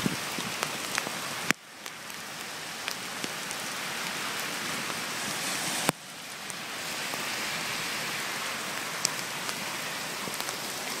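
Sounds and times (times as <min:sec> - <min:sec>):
raindrops ticking: 0:00.0 - 0:05.0, 0:08.5 - 0:11.0
rain hissing on pavement: 0:00.0 - 0:11.0.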